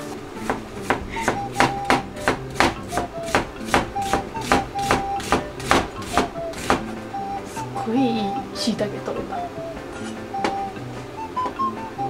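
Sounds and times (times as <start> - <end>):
knife chopping on cutting board: 0.4 - 6.9.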